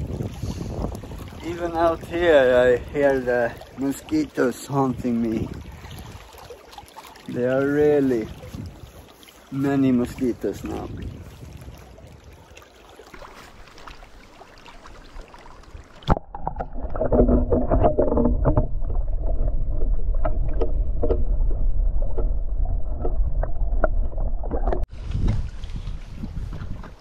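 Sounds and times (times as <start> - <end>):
small waves on shore: 0.0 - 17.3
wind: 0.0 - 27.0
muffled underwater rumble: 15.6 - 27.0
small underwater clicks and knocks: 15.6 - 27.0.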